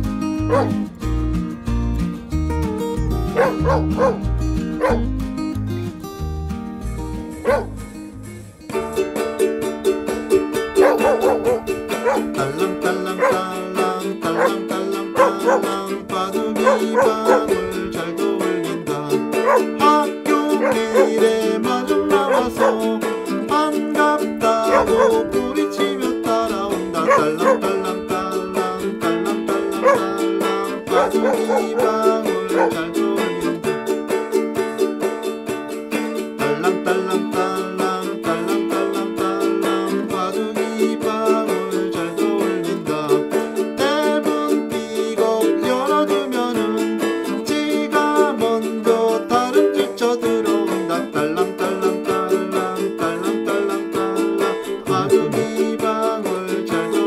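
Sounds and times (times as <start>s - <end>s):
ukulele strumming a melody: 0.0s - 57.0s.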